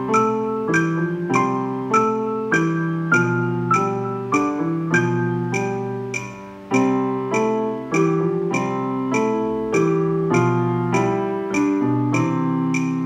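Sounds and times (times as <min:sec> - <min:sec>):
digital piano duet: 0:00.0 - 0:13.0.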